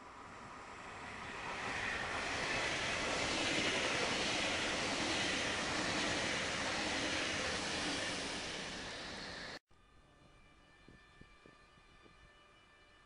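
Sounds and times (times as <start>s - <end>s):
passenger train passing: 0.0s - 9.6s.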